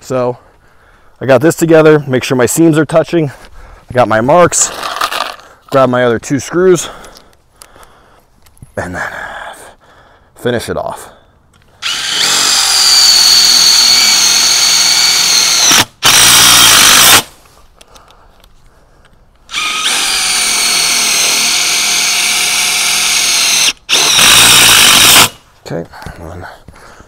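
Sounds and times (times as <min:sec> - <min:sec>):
power driver driving screws: 0:11.8 - 0:17.3, 0:19.5 - 0:25.4.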